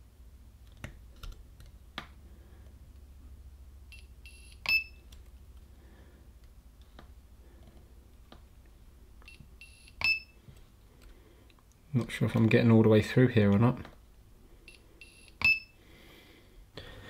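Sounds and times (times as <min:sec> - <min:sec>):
short high beeps: 0:03.9 - 0:05.0, 0:09.3 - 0:10.4, 0:14.7 - 0:15.8.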